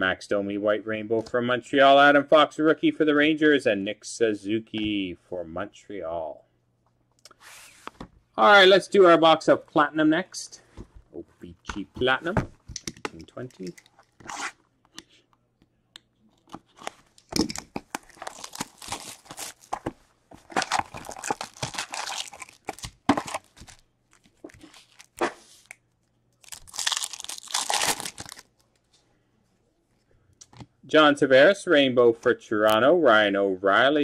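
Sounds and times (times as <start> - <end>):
handling clicks and rustles: 10.7 - 15.0, 16.3 - 24.9
wrapper tearing and crinkling: 16.7 - 25.8, 26.4 - 28.6.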